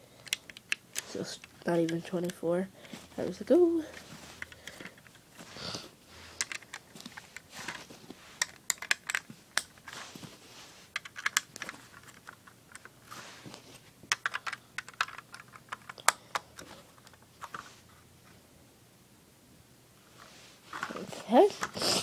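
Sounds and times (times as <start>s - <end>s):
plastic bricks clicking: 0.2s - 2.4s, 6.4s - 7.8s, 8.4s - 9.8s, 11.0s - 12.9s, 14.1s - 17.6s.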